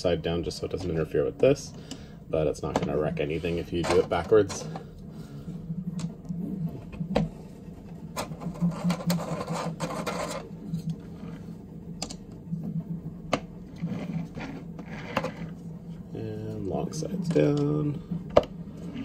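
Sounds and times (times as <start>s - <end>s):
low steady hum: 0.0s - 19.0s
plastic rubbing: 2.7s - 15.8s.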